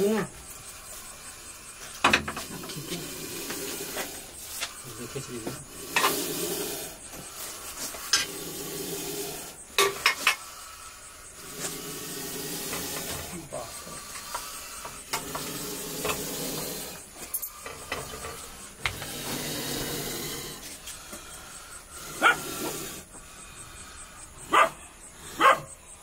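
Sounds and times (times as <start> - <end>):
dog barking: 22.2 - 22.5, 24.4 - 24.8, 25.4 - 25.7.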